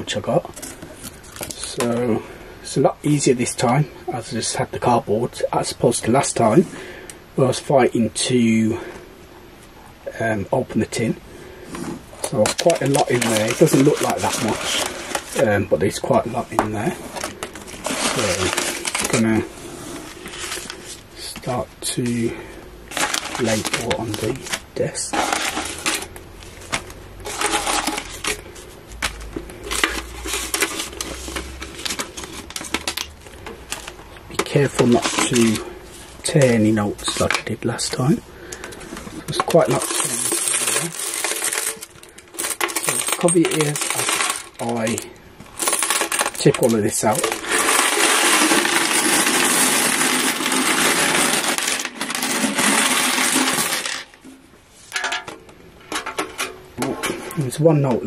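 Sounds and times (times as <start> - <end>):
banknotes rustling: 11.8 - 54.2
coins clinking: 39.3 - 54.2
coins jangling onto a desk: 39.6 - 45.0, 45.6 - 46.8.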